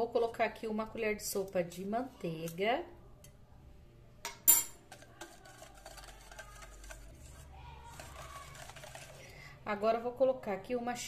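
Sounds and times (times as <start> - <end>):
wire whisk ticking against metal bowl: 5.2 - 7.1.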